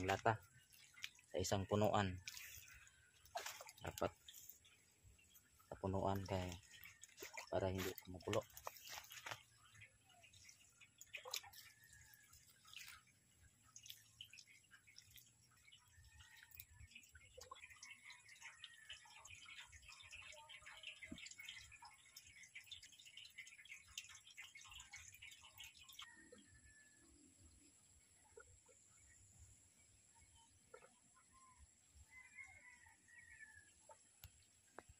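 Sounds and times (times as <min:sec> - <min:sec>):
liquid trickling onto soil: 0:00.0 - 0:29.3, 0:29.9 - 0:34.9
small clicks and crackles: 0:02.2 - 0:04.6, 0:06.2 - 0:15.3.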